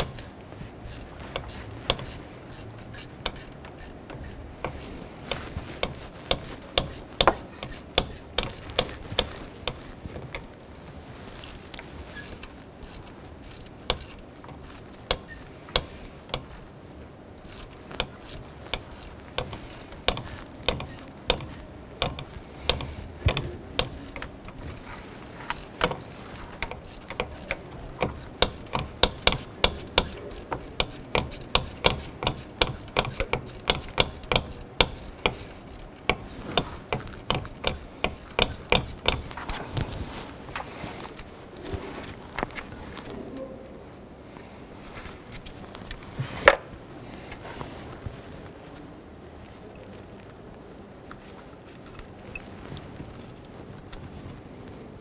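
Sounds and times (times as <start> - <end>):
hand ratchet clicking: 0.0 - 10.6, 11.2 - 16.7, 17.4 - 40.2.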